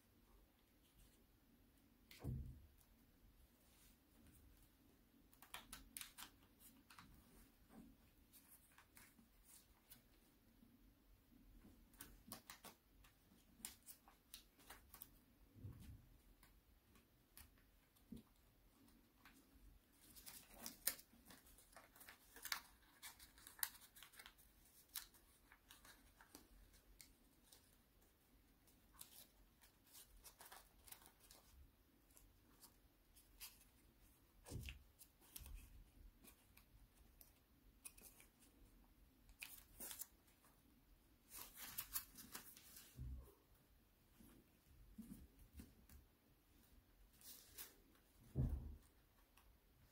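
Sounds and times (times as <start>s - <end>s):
paper crinkling while folded: 5.2s - 10.3s, 11.6s - 43.0s, 46.6s - 49.9s.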